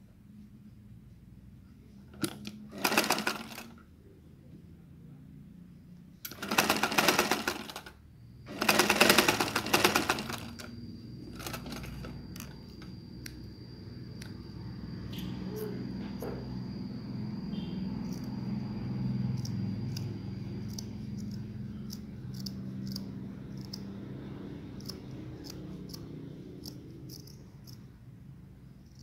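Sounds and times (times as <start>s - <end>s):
sewing machine stitching: 2.2s - 3.8s, 6.3s - 10.7s, 11.3s - 12.2s
scissors clicking: 19.3s - 23.9s, 24.8s - 27.8s.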